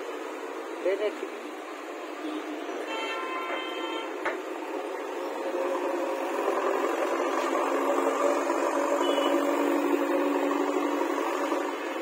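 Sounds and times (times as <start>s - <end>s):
backhoe diesel engine running: 4.7s - 12.0s.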